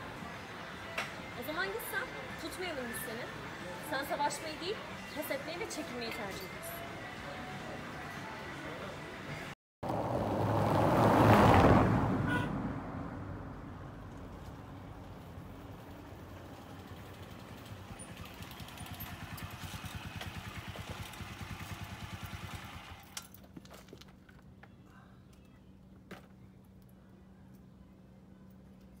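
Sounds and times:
motorcycle engine running: 0:15.8 - 0:23.2.

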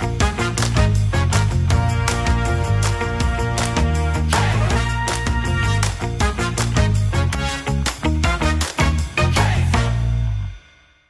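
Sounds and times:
upbeat music with bass line: 0:00.0 - 0:10.6.

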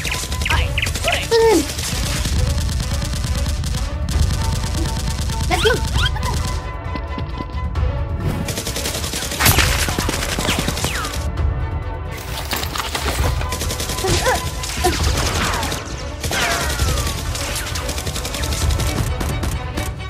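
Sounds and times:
gunfire sound effects: 0:00.0 - 0:06.6, 0:08.3 - 0:11.3
background music with low beat: 0:01.9 - 0:12.2.

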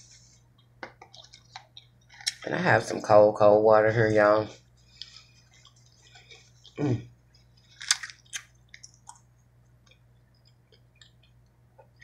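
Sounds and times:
person chewing food: 0:00.4 - 0:02.5, 0:04.6 - 0:12.0.

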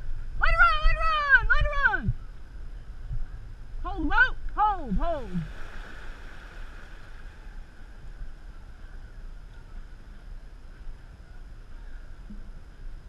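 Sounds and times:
wind rumbling on microphone: 0:00.0 - 0:13.0
water washing along boat hull: 0:04.8 - 0:08.0.

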